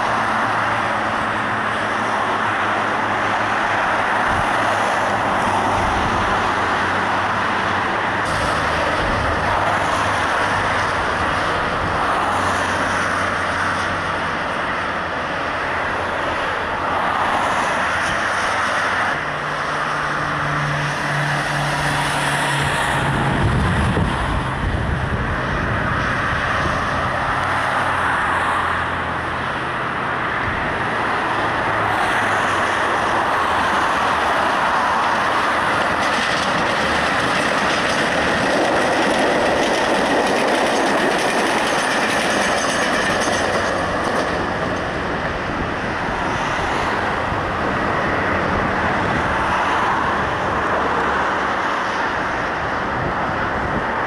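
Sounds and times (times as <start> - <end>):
vehicles passing: 0.0 - 54.0
steady engine hum: 17.6 - 54.0.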